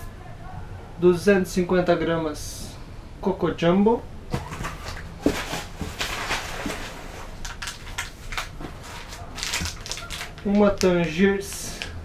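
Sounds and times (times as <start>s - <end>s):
packaging rustling: 4.3s - 12.0s.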